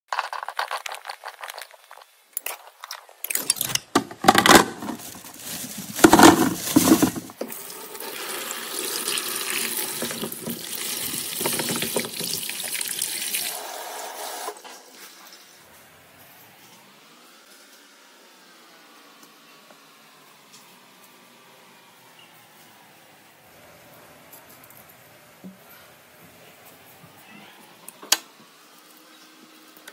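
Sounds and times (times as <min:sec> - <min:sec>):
knocks and clatter: 0:03.9 - 0:07.4
tap water running over colander: 0:06.6 - 0:14.7.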